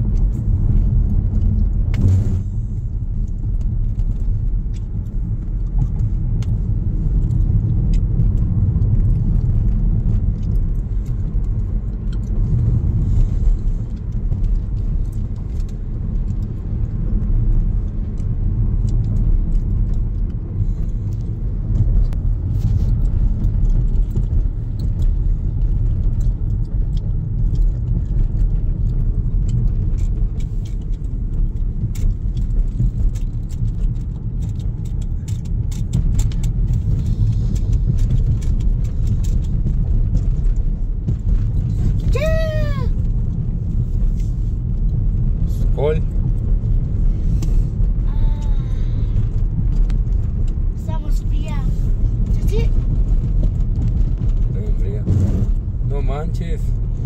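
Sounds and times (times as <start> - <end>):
tyre and engine rumble: 0.0 - 57.0
small clicks and rattles: 3.2 - 42.1.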